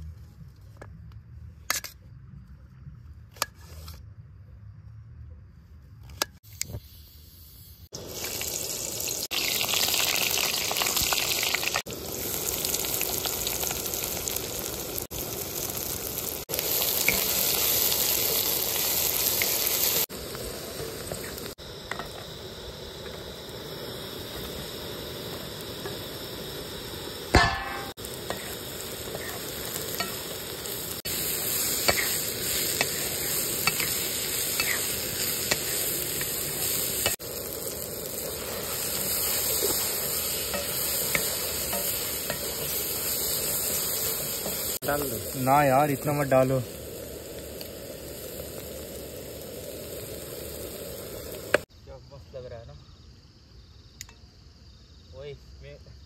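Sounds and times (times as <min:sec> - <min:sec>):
food sizzling in oil: 0:06.4 - 0:51.7.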